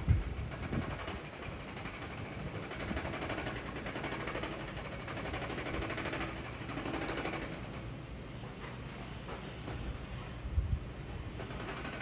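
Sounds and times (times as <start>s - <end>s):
engine running with fast pulsing: 0.0s - 7.9s, 11.2s - 12.0s.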